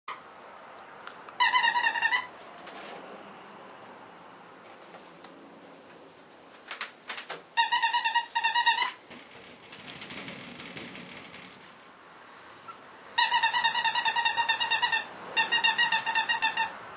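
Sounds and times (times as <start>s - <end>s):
squeaky dog toy squeaks: 1.4s - 2.3s, 7.6s - 9.0s, 13.2s - 16.8s.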